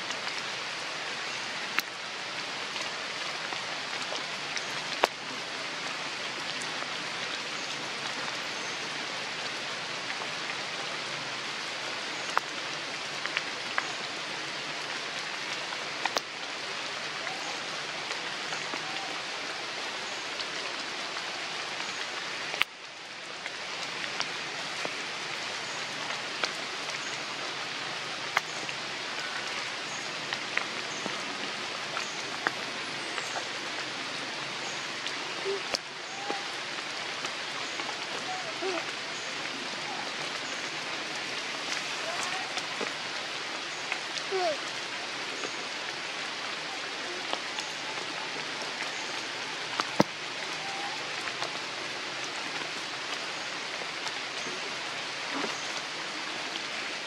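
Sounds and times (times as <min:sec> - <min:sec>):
rain on foliage: 0:00.0 - 0:57.0
raindrop ticks: 0:01.7 - 0:02.0, 0:02.6 - 0:08.7, 0:12.2 - 0:14.0, 0:14.8 - 0:16.4, 0:21.7 - 0:33.9, 0:34.8 - 0:44.8, 0:47.1 - 0:54.7.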